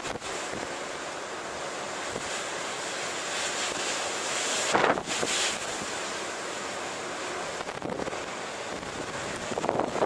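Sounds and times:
surf breaking against seawall: 0:00.0 - 0:10.0
wind buffeting microphone: 0:04.7 - 0:06.0, 0:07.6 - 0:10.0.

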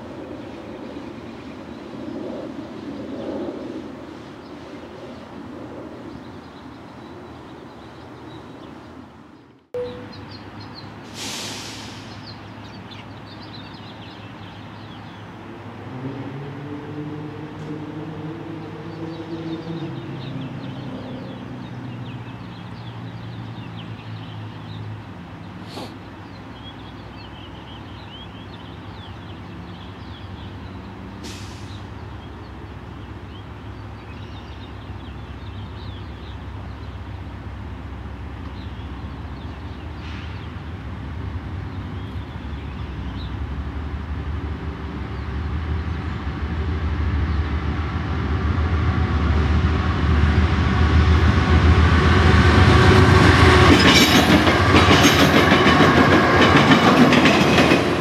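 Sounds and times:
faint bird chirps: 0:09.8 - 0:10.9.

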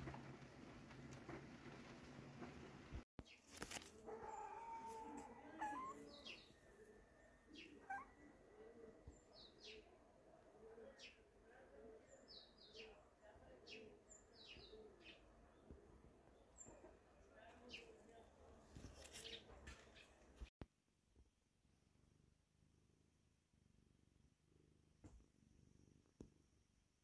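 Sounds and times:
small birds chirping: 0:03.2 - 0:20.5.

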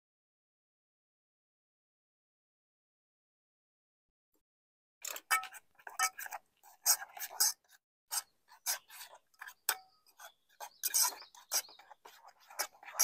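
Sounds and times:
utensil scraping metal pot: 0:05.0 - 0:13.0.

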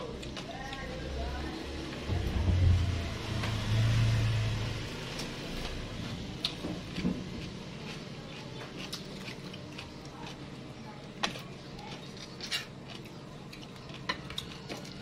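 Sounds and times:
low droning rumble: 0:01.7 - 0:06.0.

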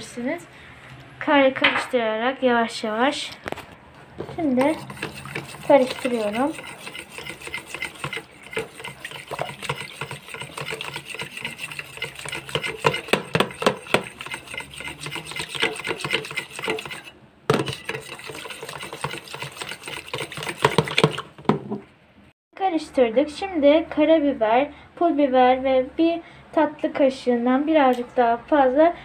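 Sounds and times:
whisk beating batter in container: 0:04.2 - 0:21.4.

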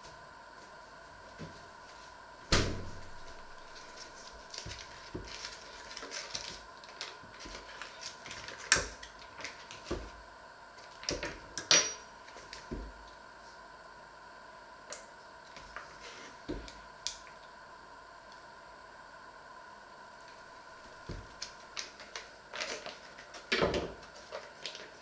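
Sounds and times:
door thudding shut: 0:02.5 - 0:03.1
foil wrapper crinkling: 0:03.0 - 0:09.9.

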